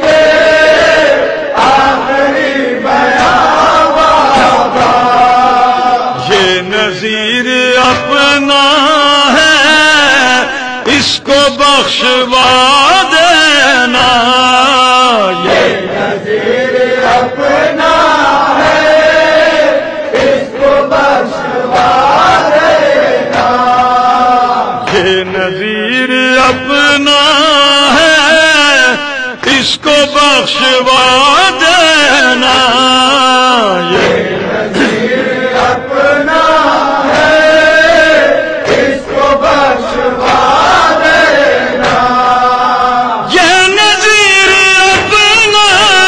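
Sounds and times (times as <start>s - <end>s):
voices chanting a lament: 0.0s - 46.0s
man singing ornamented line: 4.3s - 15.9s, 23.4s - 35.1s, 42.0s - 46.0s.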